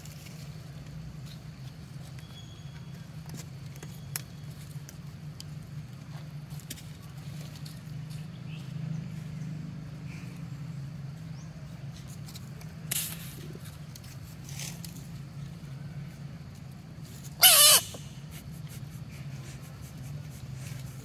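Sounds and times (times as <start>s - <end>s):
monkey squealing: 17.4s - 18.4s.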